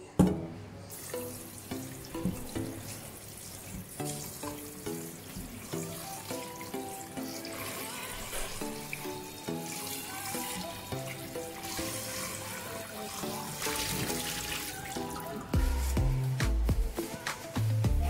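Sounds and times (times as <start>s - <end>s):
background music: 0.0s - 18.0s
water draining into sink: 0.9s - 9.1s
tap water running into steel bowl: 1.0s - 15.4s.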